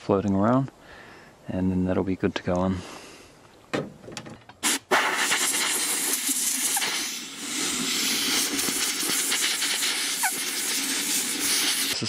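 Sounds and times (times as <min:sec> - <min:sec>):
compressed air blow gun hissing: 0:04.6 - 0:12.0.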